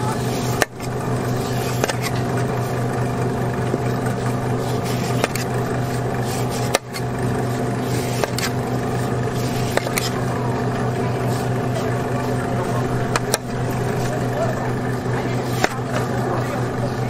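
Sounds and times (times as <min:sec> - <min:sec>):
motor humming: 0:00.0 - 0:17.0
knife scraping melon rind: 0:00.2 - 0:02.9, 0:03.8 - 0:14.2.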